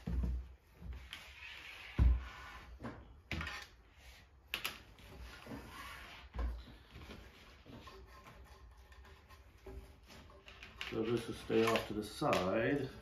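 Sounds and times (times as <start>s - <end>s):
cable rustling: 4.2s - 13.0s.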